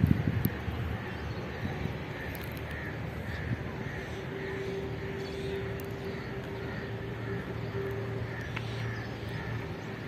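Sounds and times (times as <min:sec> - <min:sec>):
distant engine drone: 0:00.0 - 0:10.0.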